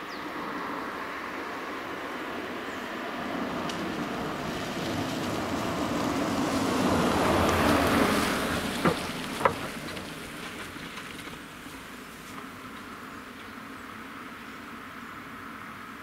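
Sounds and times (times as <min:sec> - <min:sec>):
car passing by: 0:00.0 - 0:16.0.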